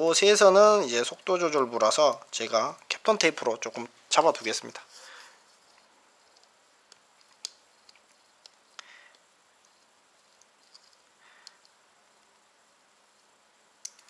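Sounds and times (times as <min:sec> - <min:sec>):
rustling of wires and tape: 0:00.8 - 0:14.0
small clicks: 0:06.3 - 0:12.4, 0:13.8 - 0:14.0.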